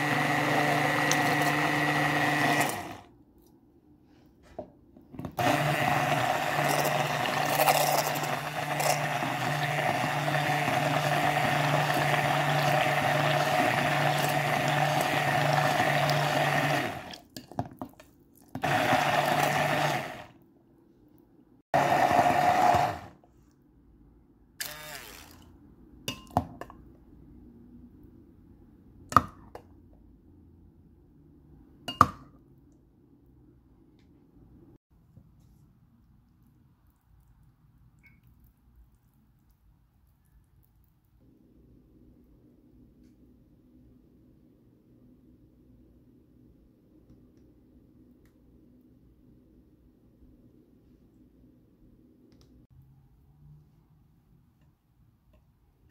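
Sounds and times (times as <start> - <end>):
stick blender running: 0.0 - 3.1, 5.4 - 17.2, 18.6 - 20.4, 21.8 - 23.2, 24.6 - 25.4.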